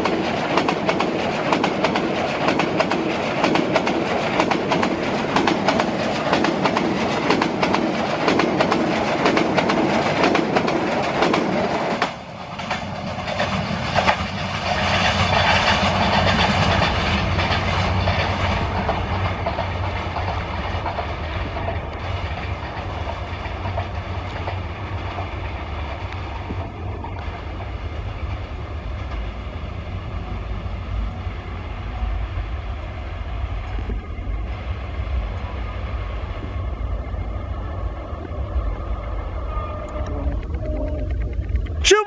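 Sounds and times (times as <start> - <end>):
train wheels on rails: 0.0 - 42.0
low rumble: 15.9 - 41.9.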